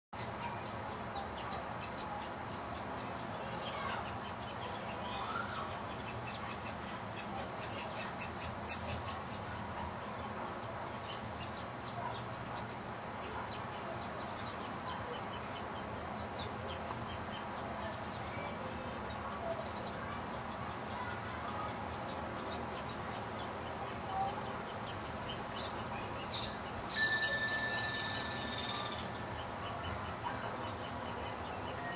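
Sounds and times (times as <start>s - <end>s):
woodpecker nestling begging calls: 0.2s - 31.9s.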